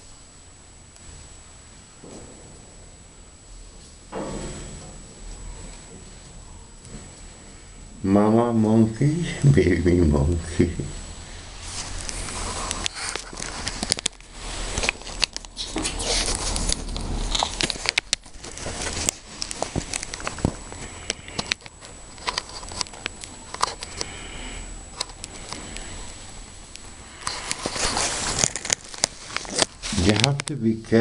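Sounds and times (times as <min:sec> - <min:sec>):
low steady hum: 0:00.0 - 0:31.0.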